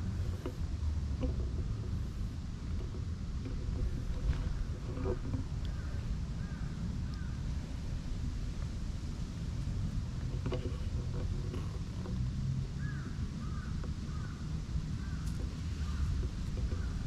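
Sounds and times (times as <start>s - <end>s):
steady low rumble: 0.0s - 17.0s
bird calling: 5.5s - 7.4s, 12.7s - 17.0s.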